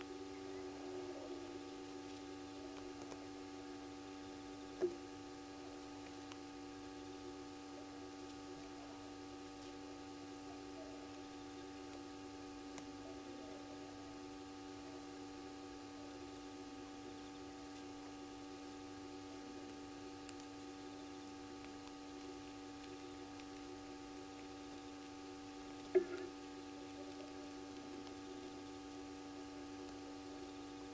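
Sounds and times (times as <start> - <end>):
steady electrical hum: 0.0 - 30.9.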